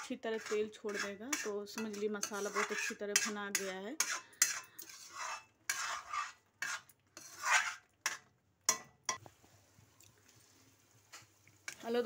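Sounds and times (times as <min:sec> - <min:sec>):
spoon scraping paste in pan: 0:00.0 - 0:09.4
spoon clinking against pan: 0:00.4 - 0:05.0, 0:08.1 - 0:09.2.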